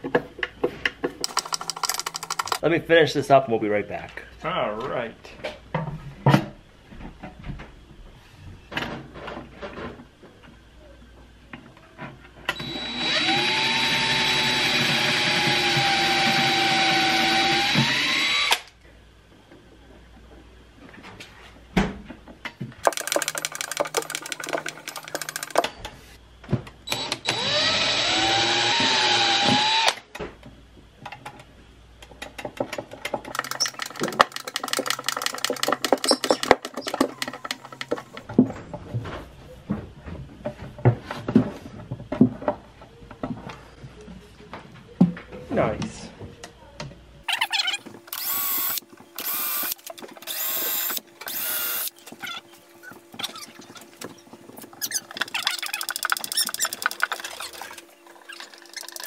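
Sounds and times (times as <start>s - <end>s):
power tool motor whining: 12.6s - 18.7s, 26.9s - 30.0s, 48.1s - 51.9s.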